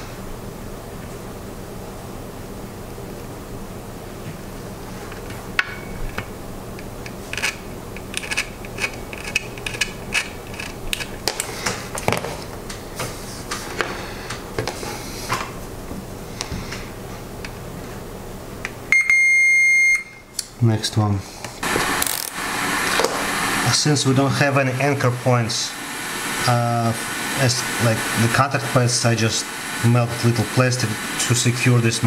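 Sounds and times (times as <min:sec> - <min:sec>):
high multimeter beep: 0:18.9 - 0:20.3.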